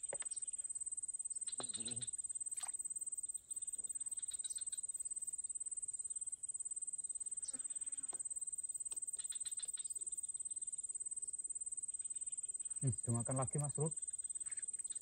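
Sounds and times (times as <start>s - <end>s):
insect buzzing: 0.0s - 15.0s.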